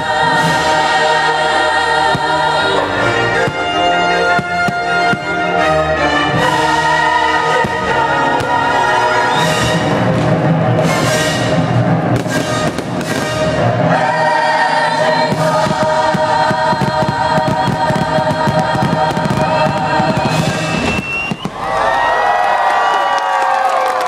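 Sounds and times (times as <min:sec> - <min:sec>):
choir singing held chords: 0:00.0 - 0:21.0
fireworks bangs: 0:03.4 - 0:05.5, 0:07.4 - 0:14.1, 0:15.1 - 0:22.1.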